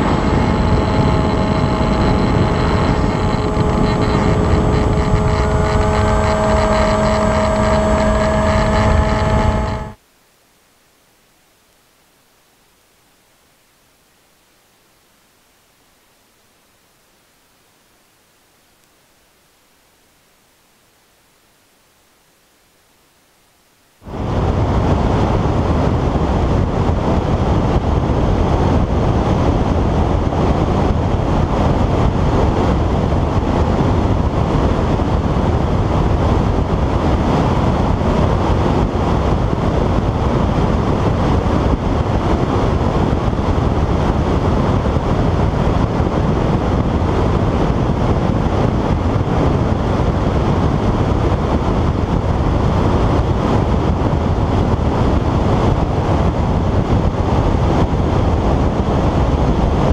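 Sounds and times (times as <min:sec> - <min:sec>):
wind buffeting microphone: 0:00.0 - 0:10.0, 0:24.0 - 0:59.9.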